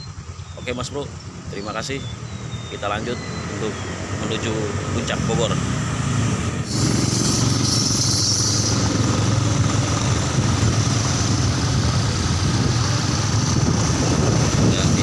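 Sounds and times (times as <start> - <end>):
motorcycle engine running: 0.0 - 15.0
road noise: 0.0 - 15.0.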